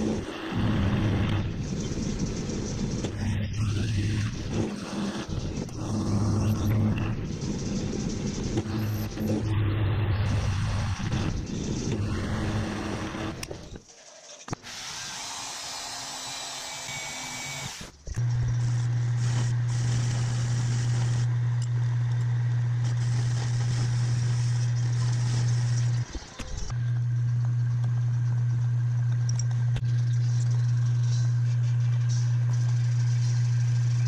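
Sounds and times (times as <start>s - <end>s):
mill-drill cutting metal: 3.0s - 13.6s, 14.5s - 26.8s.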